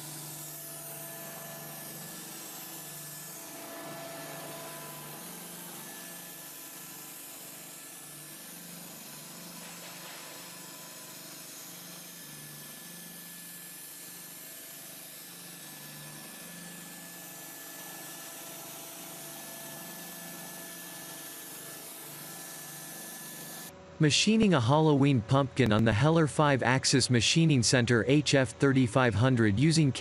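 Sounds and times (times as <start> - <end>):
faint steady machine whines: 0.0 - 30.0.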